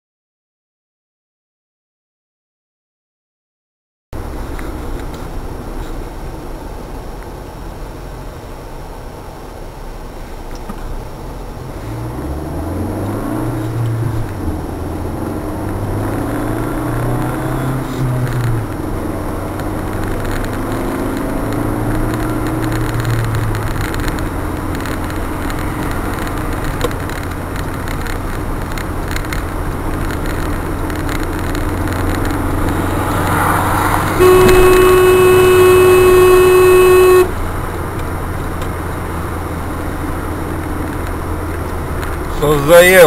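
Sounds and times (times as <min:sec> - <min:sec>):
road noise: 0:04.2 - 0:43.0
car engine accelerating: 0:10.6 - 0:43.0
car horn blast: 0:34.1 - 0:37.4.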